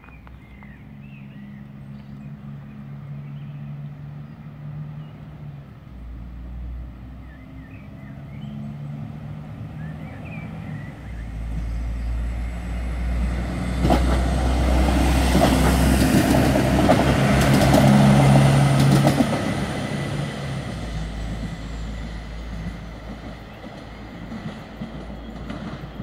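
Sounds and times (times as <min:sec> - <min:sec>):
diesel train engine drone: 0:00.0 - 0:26.0
train wheels clicking on track: 0:12.4 - 0:26.0.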